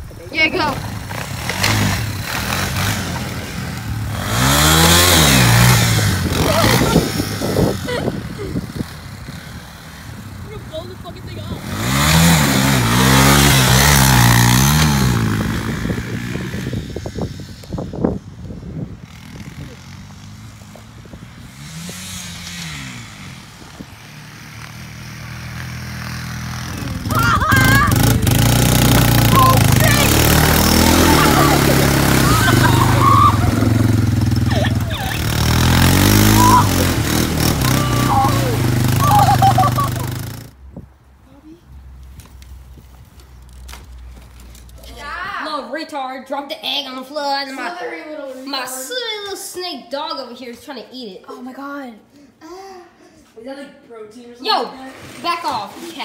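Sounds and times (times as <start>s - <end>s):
atv engine running: 0.0s - 40.6s.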